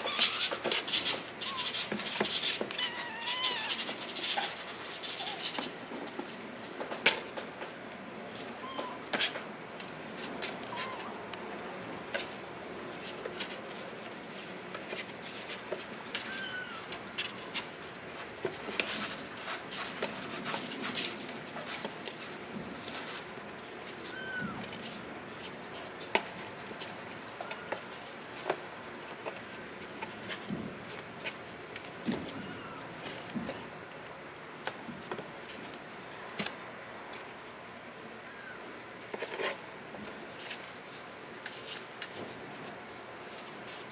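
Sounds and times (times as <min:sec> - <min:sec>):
kitten claws scratching cardboard: 0:00.1 - 0:06.3.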